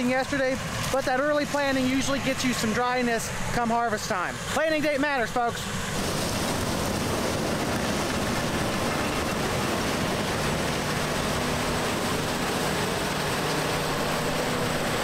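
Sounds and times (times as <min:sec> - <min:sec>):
combine harvester machine noise: 0:00.0 - 0:15.0
low engine hum: 0:05.6 - 0:15.0.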